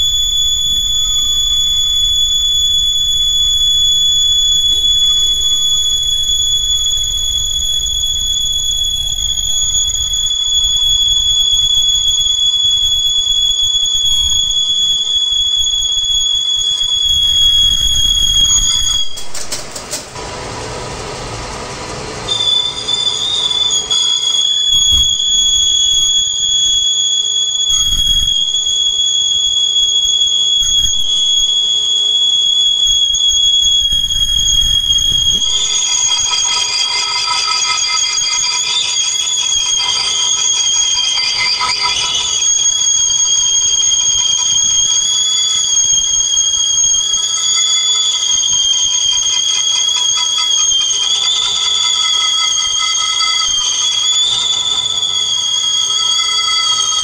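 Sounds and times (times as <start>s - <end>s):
lathe tool squealing on metal: 22.3s - 29.0s, 32.8s - 57.0s.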